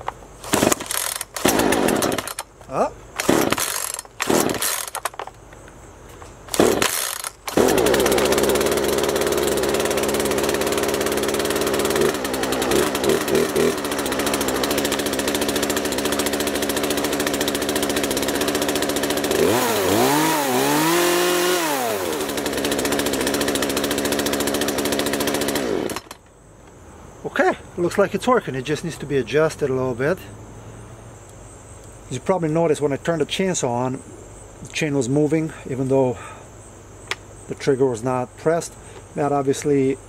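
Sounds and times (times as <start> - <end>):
chainsaw pull-start: 0.4 - 2.5, 3.2 - 5.3, 6.5 - 26.3
two-stroke chainsaw engine revving: 0.5 - 2.4, 3.2 - 5.0, 6.5 - 26.2.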